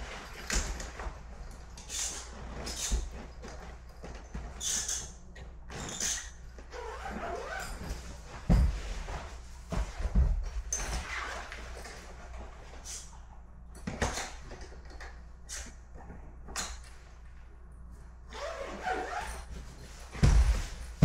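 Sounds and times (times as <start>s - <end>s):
heavy thumps: 20.1s - 21.0s.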